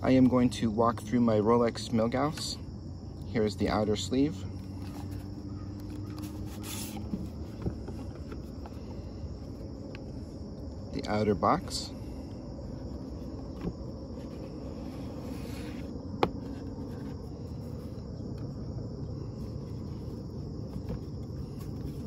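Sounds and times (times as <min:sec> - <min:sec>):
insects chirring: 0:00.0 - 0:22.0
cardboard box sliding rustle: 0:04.7 - 0:10.3, 0:12.7 - 0:18.2, 0:19.3 - 0:22.0.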